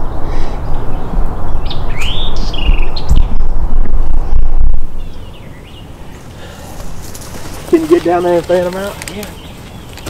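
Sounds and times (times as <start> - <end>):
loud low rumble: 0.0 - 6.1
bird chirping: 0.0 - 10.0.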